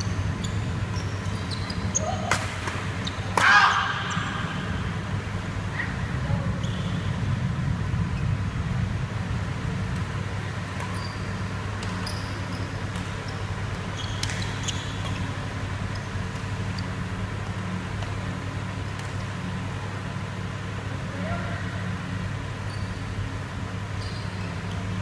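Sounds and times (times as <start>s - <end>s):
shoes squeaking on court: 0.0s - 3.4s, 6.4s - 7.3s, 10.0s - 19.6s, 22.4s - 25.0s
steady low hum: 0.0s - 25.0s.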